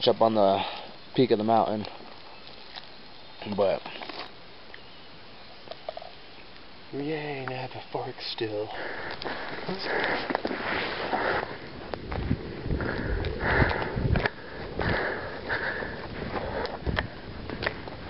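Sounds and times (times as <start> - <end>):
person breathing hard: 8.7 - 11.6, 12.6 - 17.0
low thuds and clicks: 11.9 - 18.0.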